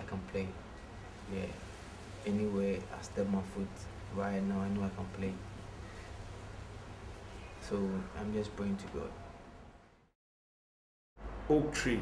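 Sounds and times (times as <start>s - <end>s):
man speaking: 1.3s - 5.5s, 7.6s - 9.2s, 11.5s - 12.0s.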